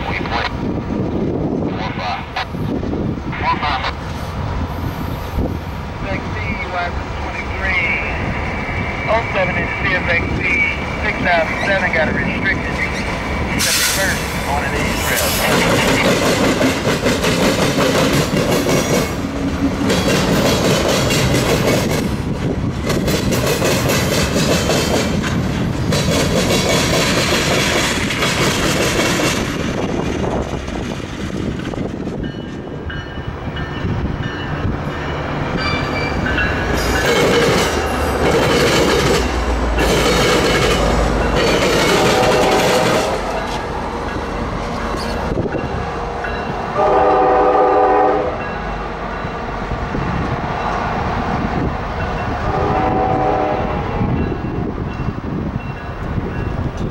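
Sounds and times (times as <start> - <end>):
diesel locomotive rumble: 0.0 - 56.9
train wheels clickety-clack: 12.7 - 32.9, 36.2 - 46.5.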